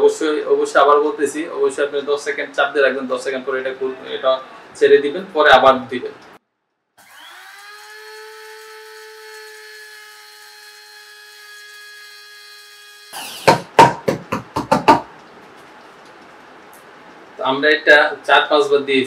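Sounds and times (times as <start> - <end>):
spice grinder motor whining: 7.0 - 13.6
sharp loud knocks: 13.4 - 15.1.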